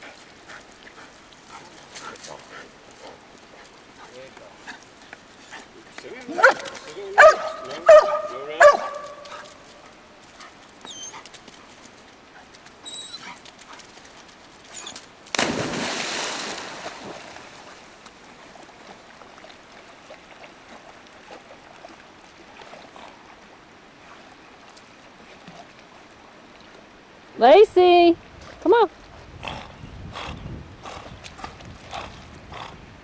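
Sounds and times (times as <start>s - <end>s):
running creek water: 0.0s - 33.0s
dog yelping: 6.4s - 9.5s.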